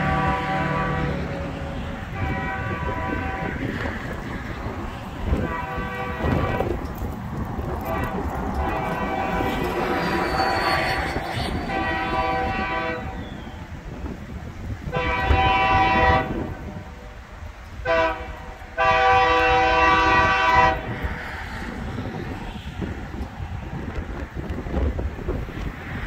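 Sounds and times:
train air horn blasts: 0:00.0 - 0:13.6, 0:14.8 - 0:17.0, 0:17.8 - 0:21.1
low rumble of a train: 0:00.0 - 0:26.0
wind: 0:00.0 - 0:26.0.

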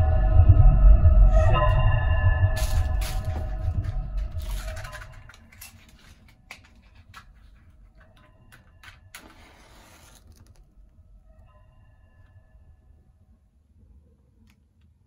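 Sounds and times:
matchbox clicks and scrapes: 0:04.3 - 0:07.7, 0:08.5 - 0:10.7.

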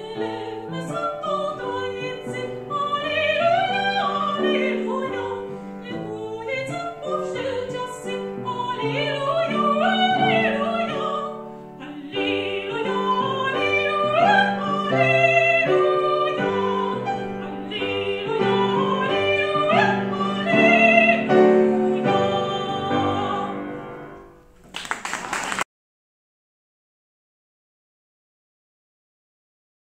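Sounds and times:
woman singing operatically: 0:00.0 - 0:23.7
grand piano playing: 0:00.0 - 0:24.7
audience applause: 0:24.6 - 0:25.7.

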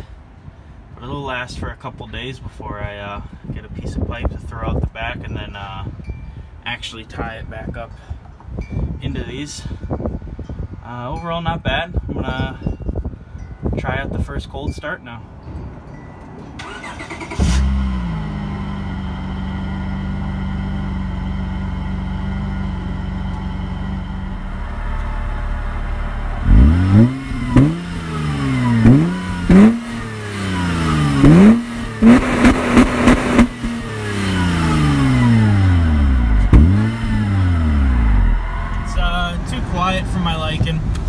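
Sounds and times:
car engine starting and revving: 0:16.6 - 0:39.9.

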